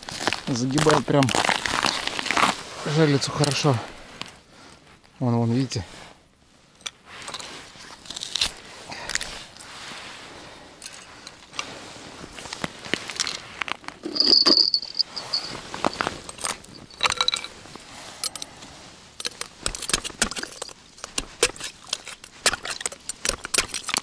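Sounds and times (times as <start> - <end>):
crunching and clicking handling noise: 10.8 - 24.0.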